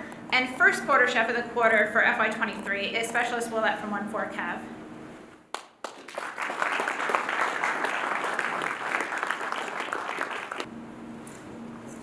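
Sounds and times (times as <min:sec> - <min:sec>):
audience applauding: 0:05.6 - 0:10.7.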